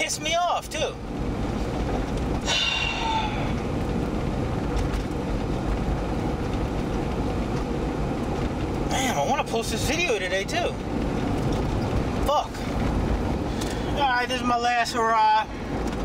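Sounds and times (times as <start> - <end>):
car cabin rumble and hiss: 0.0 - 16.0.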